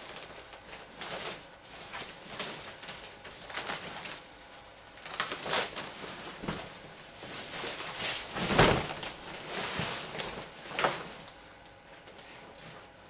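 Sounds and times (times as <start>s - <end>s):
thin plastic rustling and crinkling: 0.0s - 13.0s.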